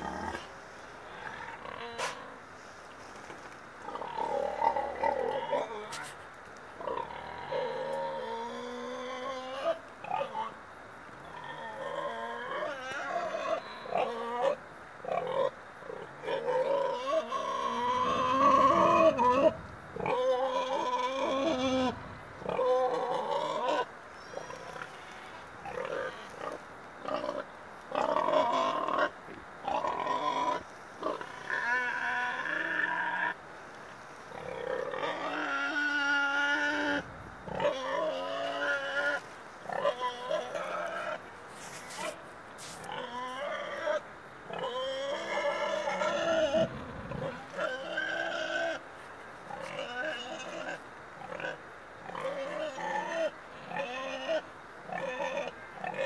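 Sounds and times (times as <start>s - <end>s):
animals calling: 11.2s - 33.4s, 34.2s - 56.0s.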